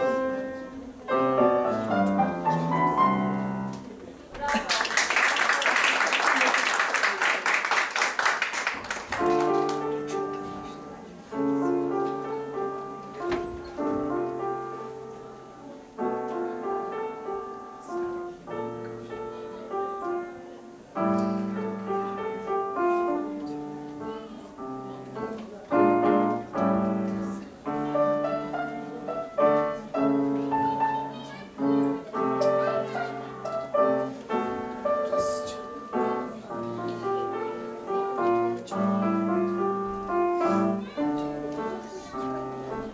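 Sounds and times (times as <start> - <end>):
solo grand piano: 0.0 - 4.2, 8.6 - 42.9
audience applause: 4.4 - 9.9.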